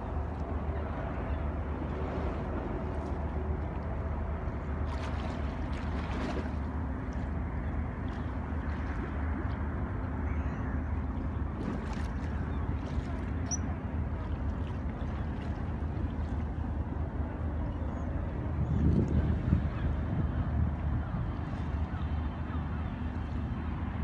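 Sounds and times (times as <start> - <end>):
choppy water: 0.0 - 24.0
faint engine hum: 0.0 - 24.0
wind rumble: 0.0 - 24.0
faint high chirp: 13.4 - 13.8.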